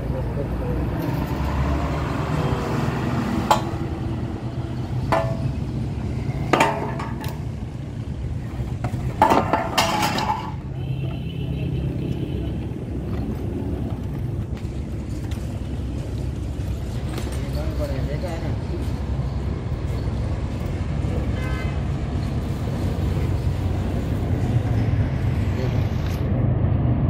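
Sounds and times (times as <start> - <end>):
low vehicle rumble: 0.0 - 27.0
metal clinks and clanks: 8.8 - 10.7, 14.8 - 20.8.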